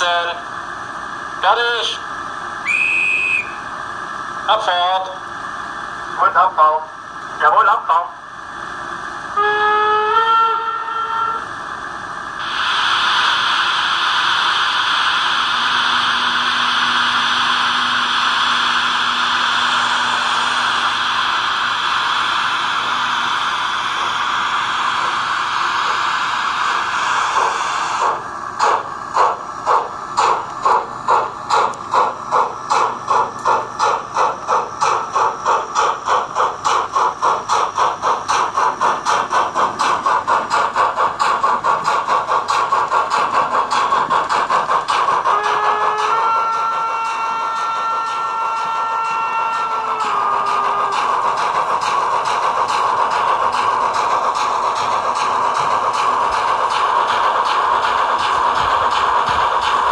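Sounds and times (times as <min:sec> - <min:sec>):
steam locomotive exhaust chuffs: 0:00.0 - 0:59.9
steam hiss: 0:02.6 - 0:06.4, 0:12.0 - 0:59.9
steam hiss from small loudspeaker: 0:12.4 - 0:28.8.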